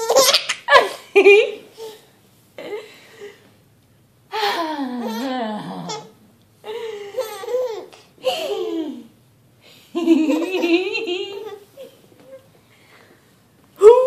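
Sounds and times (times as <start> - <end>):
baby laughing: 0.0 - 1.0, 7.1 - 9.1, 10.1 - 12.5.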